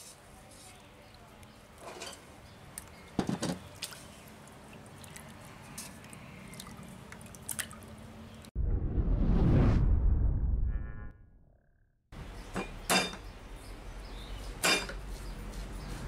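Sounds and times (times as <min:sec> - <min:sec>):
water dripping and splashing: 0:03.6 - 0:08.5
low rushing whoosh effect: 0:08.6 - 0:11.1.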